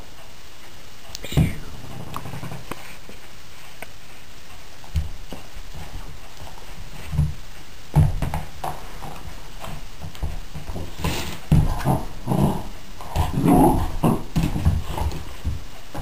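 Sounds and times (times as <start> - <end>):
puppy scuffling: 0.0 - 16.0
puppy paws thumping: 4.5 - 16.0.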